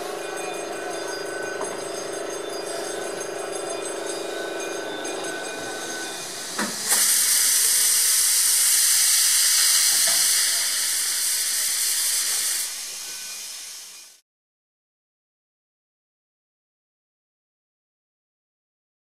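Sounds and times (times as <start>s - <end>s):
steam locomotive hissing steam: 0.0s - 14.2s.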